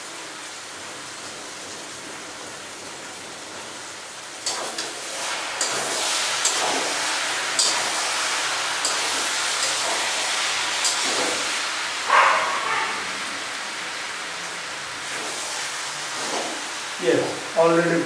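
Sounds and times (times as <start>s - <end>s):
vegetables sizzling in a pan: 0.0s - 18.0s.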